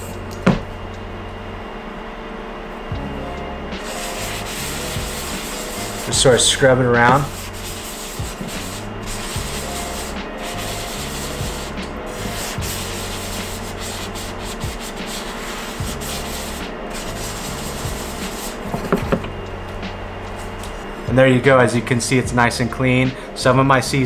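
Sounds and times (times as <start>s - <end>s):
salt scrubbing a pan: 3.8s - 19.0s.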